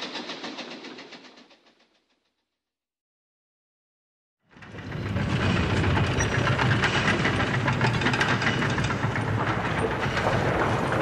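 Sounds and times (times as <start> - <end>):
wheels clattering on rails: 4.5 - 11.0.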